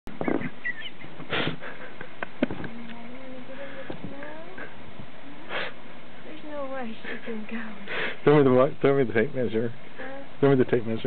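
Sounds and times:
breathy puffs: 1.2 - 2.0, 5.4 - 5.8, 7.0 - 8.3.

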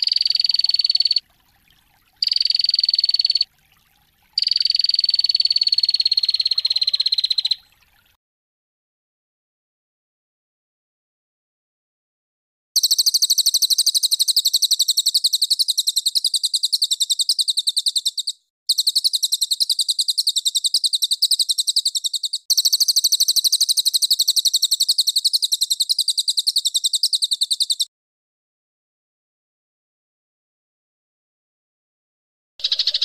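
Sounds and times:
songbird rapid trill: 0.0 - 1.2, 2.2 - 3.5, 4.4 - 7.8, 12.8 - 27.9, 32.6 - 33.0.

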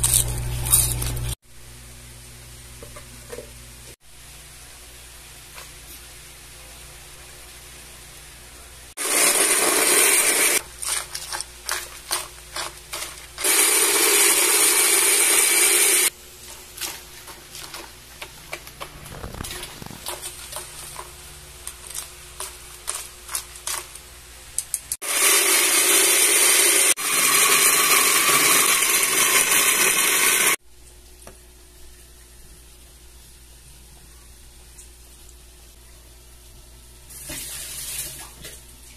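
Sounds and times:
blender running: 9.0 - 10.6, 13.4 - 16.1, 25.0 - 30.6.

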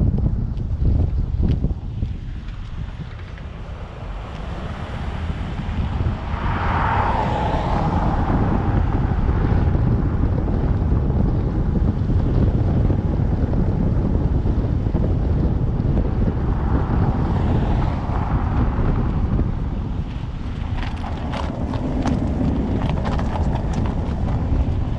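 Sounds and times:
road noise: 0.0 - 24.9
wind buffeting microphone: 0.0 - 24.9.

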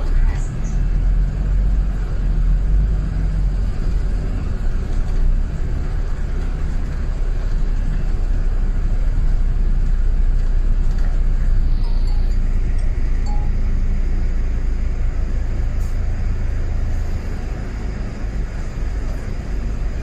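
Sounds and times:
bus engine and road rumble: 0.0 - 20.0.

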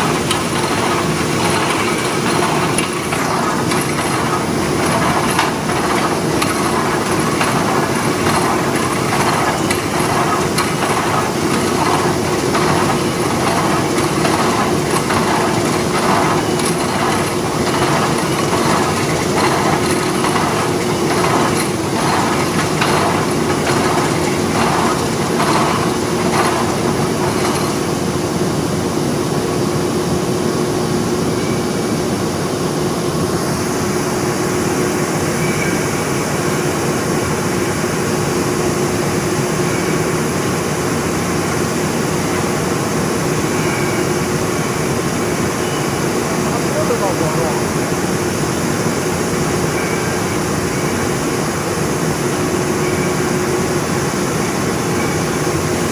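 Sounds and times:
factory machinery din: 0.0 - 28.4, 45.3 - 48.8
coil wrapping machine pulsing: 0.0 - 28.7, 41.1 - 55.9.

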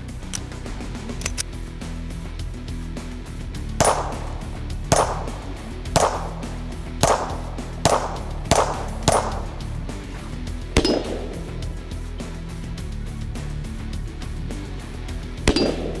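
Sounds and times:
pistol shots: 3.8 - 9.8, 10.8 - 11.8, 15.5 - 16.0.

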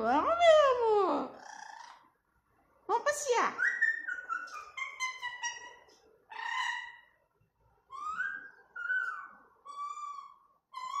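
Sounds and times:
parrot calling: 3.6 - 7.2, 7.9 - 11.0.

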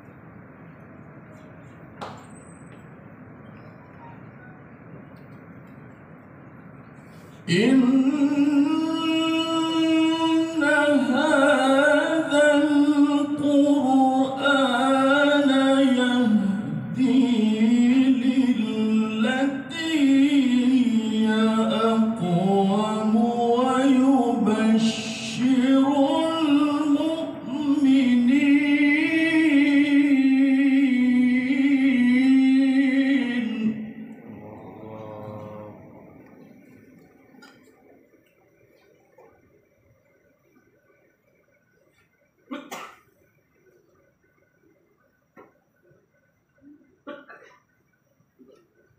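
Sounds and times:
man chanting into a microphone: 7.4 - 36.2.

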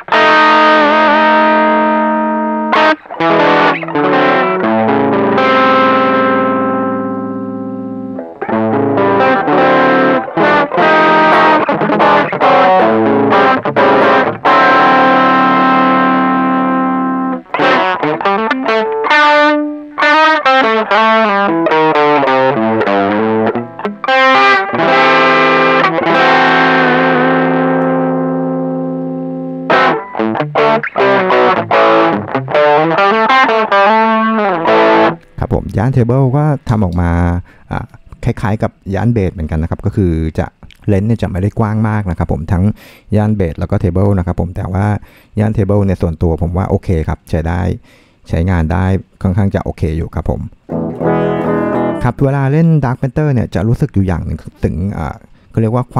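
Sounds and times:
distorted electric guitar: 0.0 - 38.1, 50.5 - 52.6.

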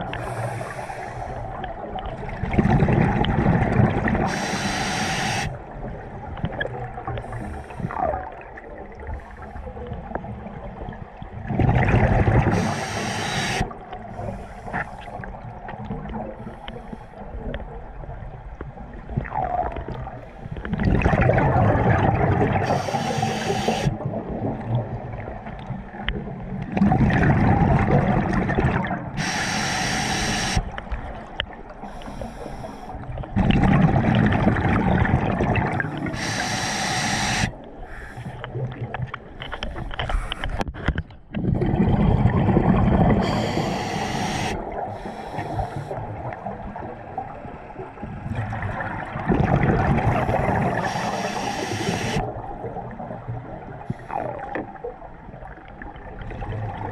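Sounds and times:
diver breathing through regulator: 0.0 - 1.5, 4.2 - 5.6, 7.2 - 8.0, 12.5 - 15.3, 22.6 - 23.9, 29.2 - 30.7, 31.8 - 33.0, 35.8 - 38.5, 43.2 - 46.0, 50.1 - 52.2
bubbling air rumble: 0.0 - 4.4, 5.5 - 12.8, 17.3 - 29.2, 32.9 - 37.6, 40.6 - 56.9.

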